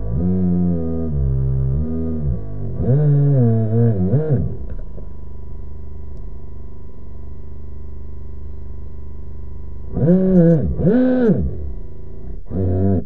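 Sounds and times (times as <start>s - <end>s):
electric motor and water pump revving: 0.0s - 4.7s, 9.9s - 13.0s.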